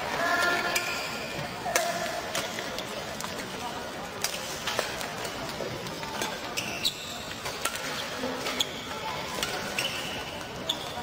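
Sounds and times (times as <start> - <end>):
shoes squealing on court floor: 6.5 - 7.3, 9.6 - 11.0.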